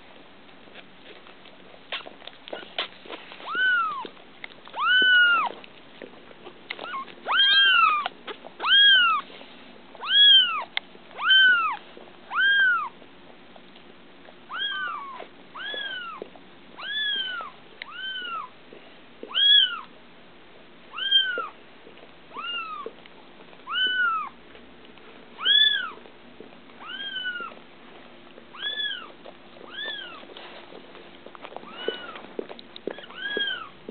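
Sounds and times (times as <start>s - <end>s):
kittens mewing: 1.9s - 5.6s, 6.8s - 9.3s, 10.0s - 13.0s, 14.5s - 18.6s, 20.9s - 21.6s, 22.3s - 23.0s, 23.6s - 24.4s, 25.4s - 26.0s, 26.8s - 27.6s, 28.5s - 30.3s, 31.5s - 33.8s.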